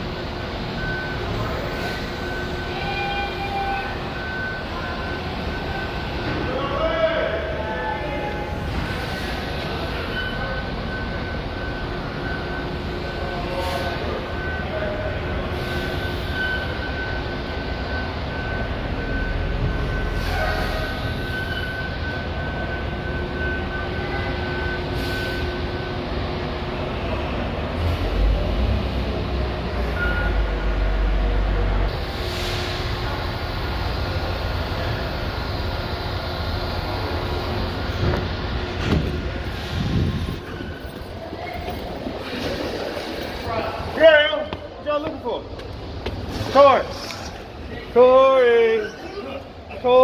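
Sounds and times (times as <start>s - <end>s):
diesel truck engines rumbling: 0.0s - 50.0s
air brake hisses: 13.5s - 14.2s, 15.5s - 16.7s, 20.1s - 21.8s, 24.9s - 25.6s, 32.0s - 33.1s, 39.4s - 40.4s.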